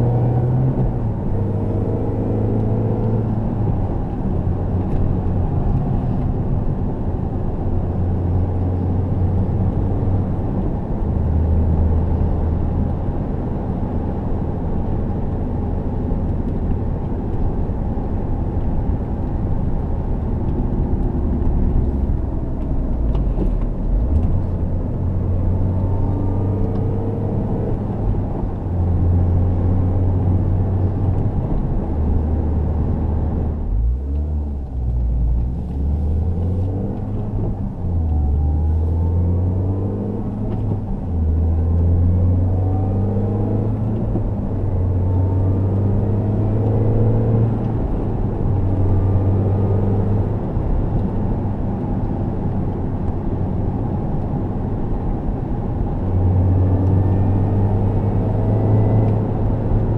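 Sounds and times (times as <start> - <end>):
car engine droning: 0.0 - 59.9
road and tyre noise: 0.0 - 59.9.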